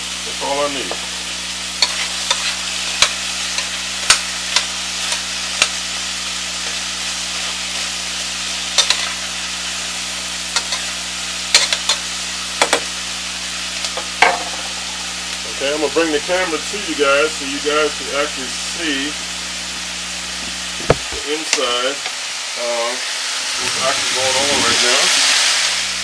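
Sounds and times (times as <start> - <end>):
food sizzling in oil: 0.0 - 26.0
utensil scraping a pot: 1.8 - 5.7.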